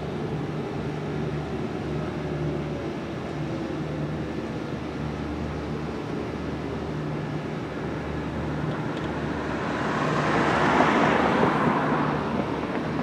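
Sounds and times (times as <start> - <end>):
steady low hum: 0.0 - 13.0
vehicle passing by: 9.3 - 13.0.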